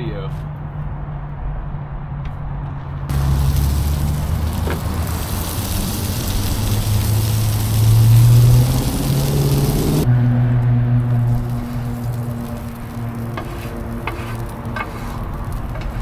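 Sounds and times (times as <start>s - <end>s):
low vehicle engine hum: 0.4s - 16.0s
food sizzling on a griddle: 3.1s - 10.1s, 11.0s - 16.0s.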